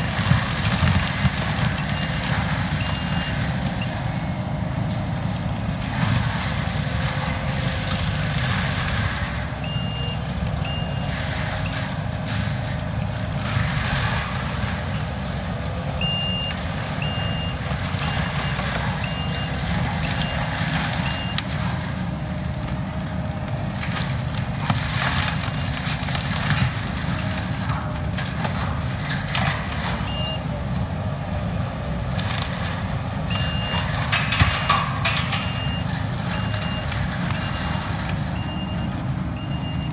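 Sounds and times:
diesel engine under load: 0.0s - 39.9s
reversing alarm beeps: 1.7s - 4.0s, 9.6s - 12.0s, 15.8s - 21.5s, 30.0s - 30.5s, 33.3s - 39.9s.

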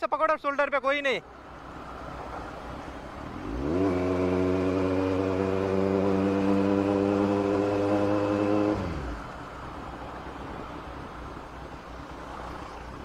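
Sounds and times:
motorcycle engine revving: 3.1s - 9.4s.

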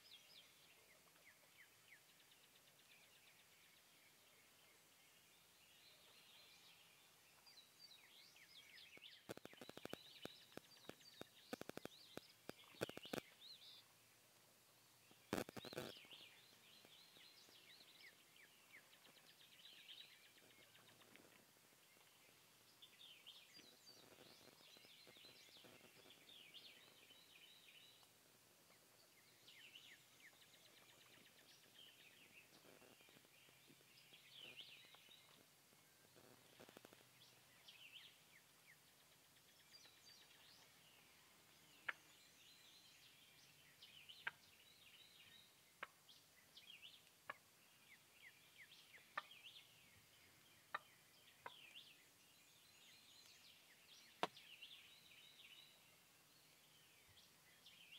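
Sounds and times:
faint field ambience: 0.0s - 57.9s
high chirping bird calls: 8.9s - 13.5s, 15.3s - 21.3s, 22.8s - 28.0s.

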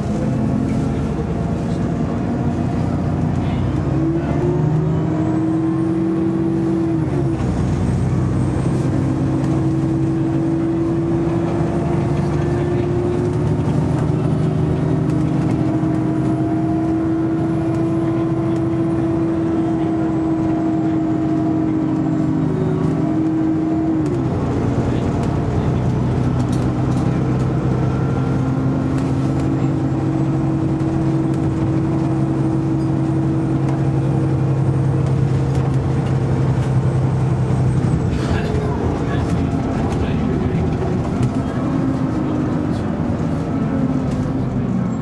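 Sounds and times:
bus engine drone: 0.0s - 45.0s.

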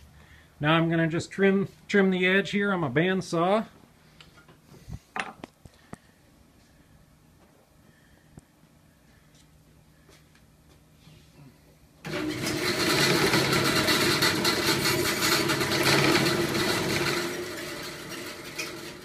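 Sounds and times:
bandsaw running: 12.1s - 19.0s.

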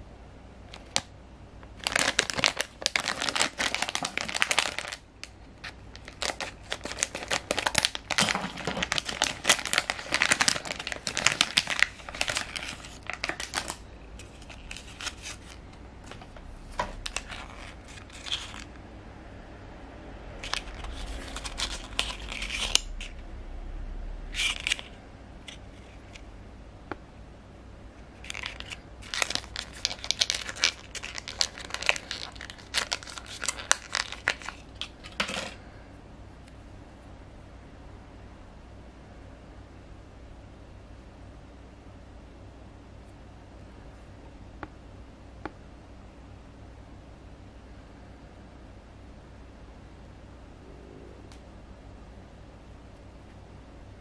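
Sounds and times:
plastic shell crackling: 1.7s - 18.8s, 20.4s - 23.1s, 28.2s - 35.6s
plastic bag crinkling and tearing: 1.8s - 18.8s, 20.4s - 23.2s, 24.3s - 26.2s, 28.1s - 35.6s.

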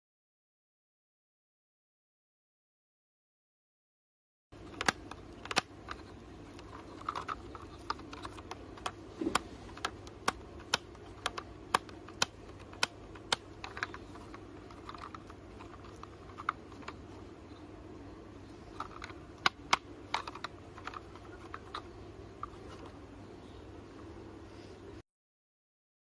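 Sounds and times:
plastic toy car clicking and tapping: 4.6s - 17.0s, 18.7s - 22.9s
low steady hum: 4.6s - 25.0s.

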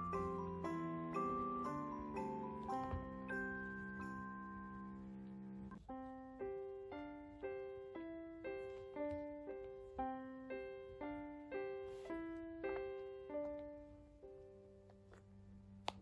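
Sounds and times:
gentle melody of struck notes: 0.0s - 8.0s.

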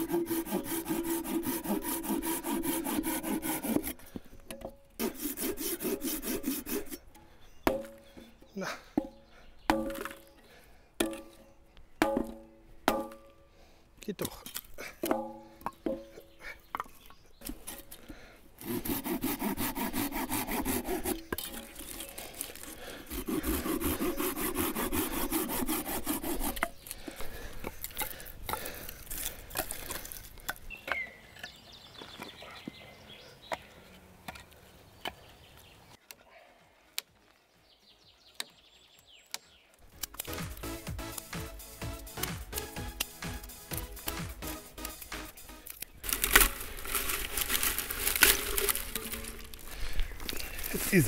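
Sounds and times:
saw cutting wood: 0.0s - 4.1s, 5.0s - 7.1s, 18.6s - 26.8s, 40.0s - 49.6s.

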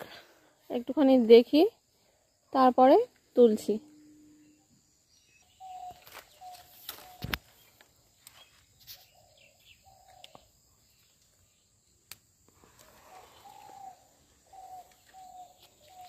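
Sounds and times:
faint bird calling: 3.9s - 7.8s, 12.6s - 16.0s
leaves and twigs clicking: 5.8s - 9.1s, 12.0s - 16.0s.

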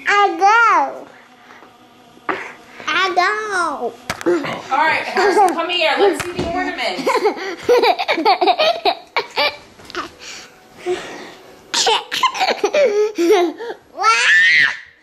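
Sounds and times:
toddler laughing: 7.0s - 10.1s, 11.8s - 14.2s
toddler squealing: 14.0s - 15.0s.

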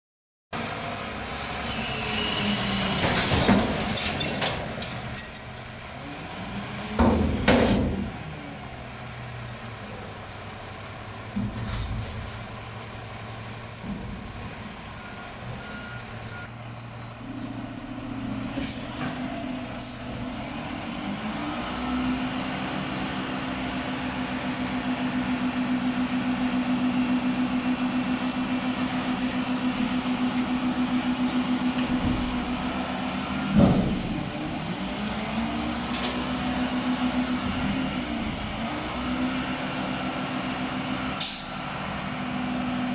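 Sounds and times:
diesel truck engine running: 2.7s - 42.9s
air brake burst: 41.2s - 41.6s.

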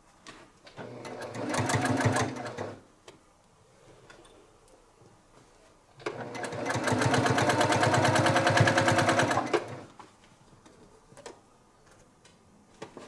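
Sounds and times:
sewing machine stitching: 0.8s - 2.8s, 6.0s - 9.9s.

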